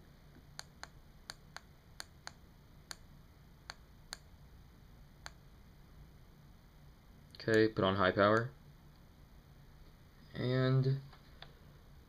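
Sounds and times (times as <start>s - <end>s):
laser pointer switch clicks: 0.6s - 3.0s, 3.7s - 4.3s.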